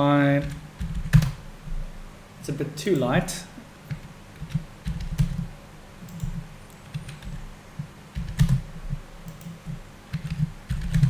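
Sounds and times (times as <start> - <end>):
computer keyboard keystrokes: 0.4 - 1.4, 3.9 - 5.4, 6.1 - 7.4, 8.1 - 8.6, 9.3 - 11.0.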